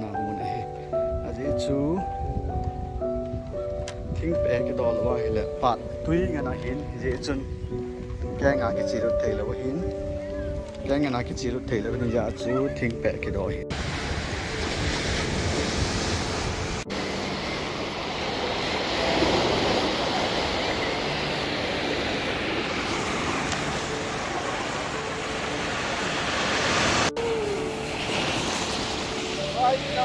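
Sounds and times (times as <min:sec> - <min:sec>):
ocean surf breaking: 0:13.7 - 0:30.0.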